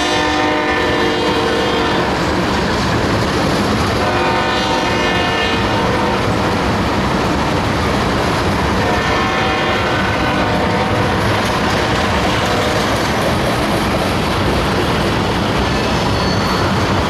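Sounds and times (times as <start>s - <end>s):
locomotive horn blasts: 0.0s - 2.2s, 4.0s - 6.3s, 8.8s - 12.5s
freight cars wheel and rail noise: 0.0s - 17.0s.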